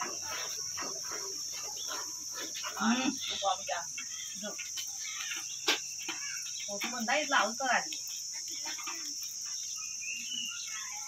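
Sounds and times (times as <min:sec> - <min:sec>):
insect chirring: 0:00.0 - 0:11.0.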